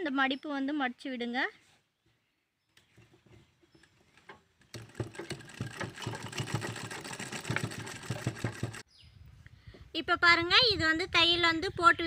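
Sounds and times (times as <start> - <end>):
sewing machine clatter: 4.6 - 8.8.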